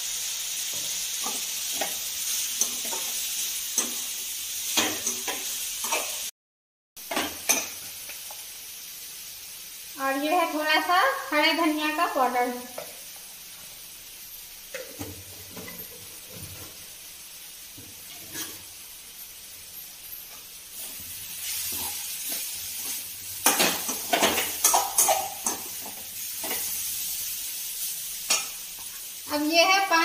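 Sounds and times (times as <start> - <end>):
vegetables sizzling in pan: 0.0 - 6.3, 7.0 - 30.0
metal spatula scraping pan: 18.1 - 18.7.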